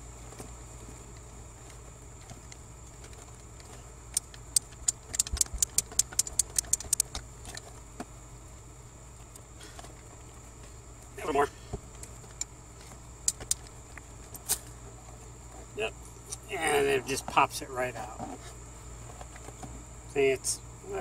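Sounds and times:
socket ratchet clicking: 4.2s - 7.1s, 13.2s - 13.7s.

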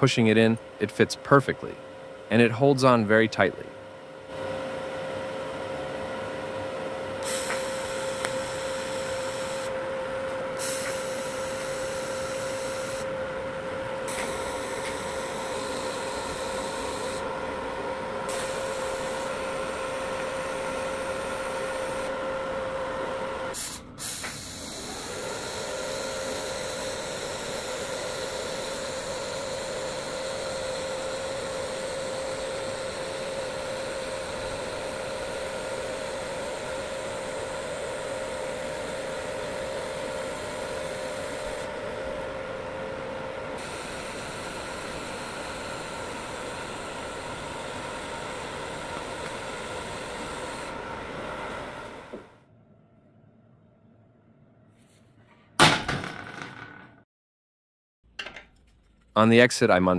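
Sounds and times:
welding arc hissing buzz: 7.2s - 9.8s, 10.5s - 13.2s, 13.8s - 52.2s.

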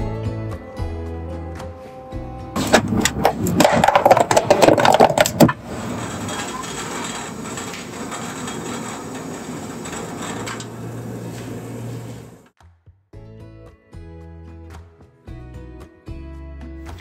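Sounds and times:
kettle hissing on gas stove: 5.5s - 12.5s.

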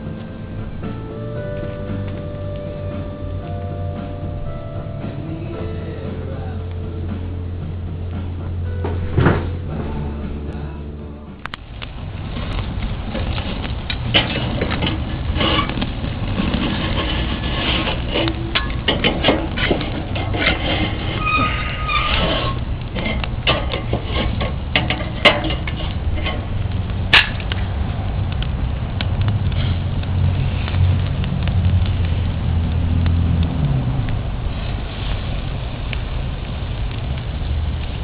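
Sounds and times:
fire crackles and pops: 0.0s - 4.5s, 11.4s - 38.0s
low rumble: 0.0s - 38.0s
chicken sizzling on barbecue: 11.5s - 38.0s.

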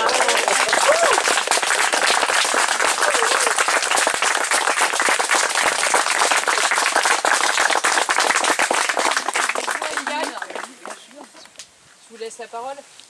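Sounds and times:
crowd applauding: 0.0s - 11.4s.

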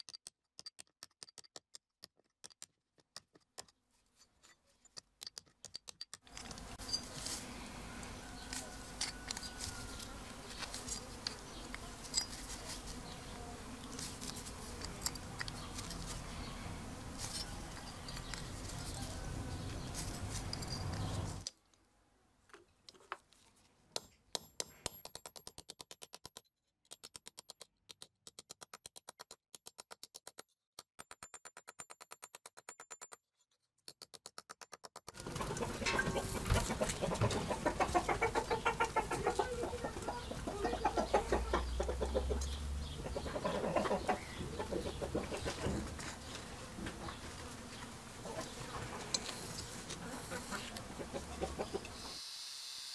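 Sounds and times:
birds: 6.5s - 21.4s, 35.2s - 52.1s
hens clucking: 35.2s - 52.0s.

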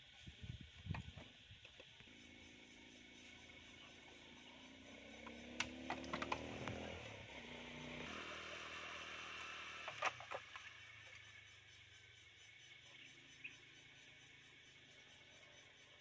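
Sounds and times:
steady high-pitched hiss: 0.0s - 5.8s, 6.4s - 16.0s
motorbike engine passing: 2.2s - 11.5s
sharp clicks and knocks: 5.2s - 6.9s.

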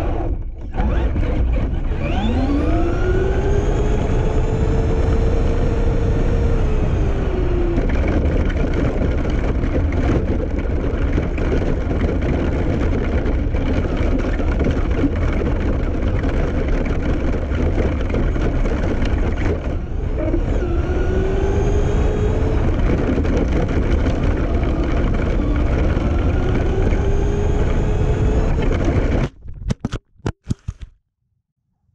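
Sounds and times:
electric motor whine: 0.0s - 10.1s, 17.8s - 29.2s
rc truck rumble: 0.0s - 29.5s.

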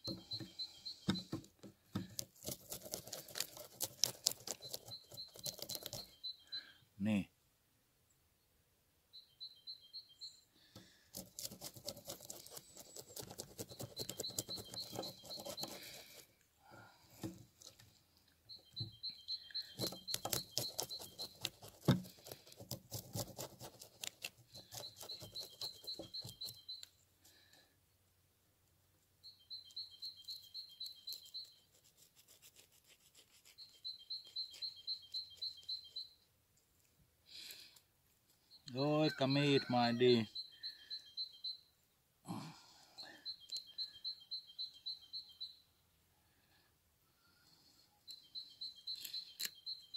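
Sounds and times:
knife scraping fish scales: 2.2s - 6.1s, 11.2s - 16.2s, 19.8s - 26.4s
bird trilling: 2.8s - 6.7s, 12.3s - 16.2s, 18.5s - 21.7s, 38.5s - 41.7s.

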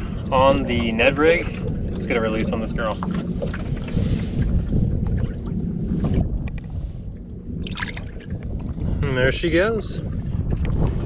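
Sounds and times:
water sloshing: 0.0s - 9.0s
wind rumbling on microphone: 0.0s - 11.0s
splash: 7.6s - 8.4s.

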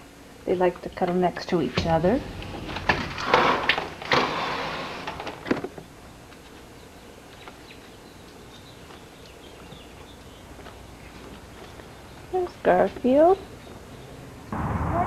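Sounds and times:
clunk: 1.8s - 5.7s.

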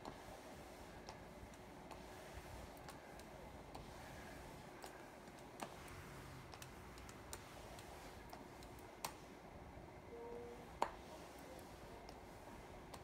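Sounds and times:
light clicks and taps: 1.0s - 4.0s, 4.7s - 9.2s, 10.8s - 12.3s.

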